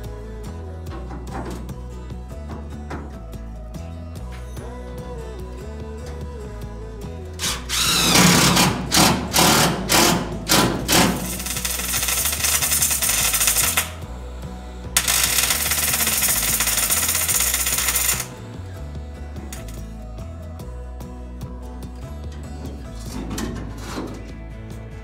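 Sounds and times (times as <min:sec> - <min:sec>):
impact driver hammering: 0:07.4 - 0:14.0, 0:15.0 - 0:18.4
welder crackling: 0:07.4 - 0:14.2, 0:15.0 - 0:18.5, 0:19.4 - 0:19.9.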